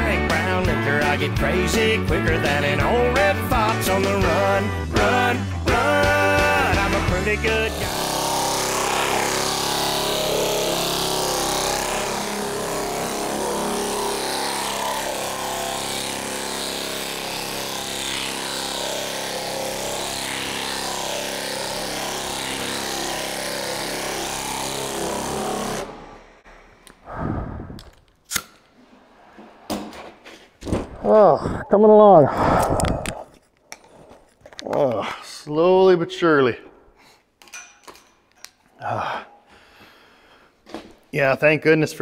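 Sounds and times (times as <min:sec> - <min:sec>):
air sander running: 0:03.6 - 0:27.8.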